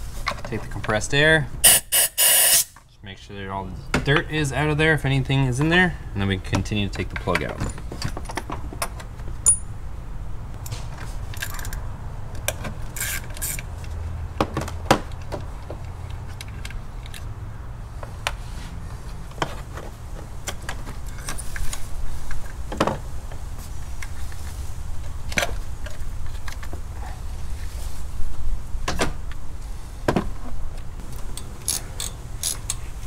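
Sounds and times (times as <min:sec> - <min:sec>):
brief hiss: 0:01.8 - 0:02.8.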